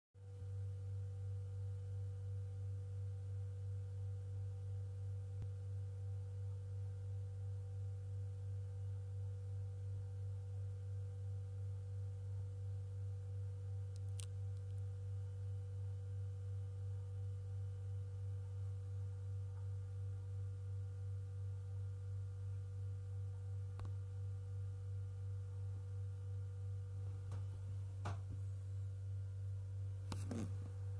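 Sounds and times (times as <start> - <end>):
low pulsing hum: 0.2 - 30.9.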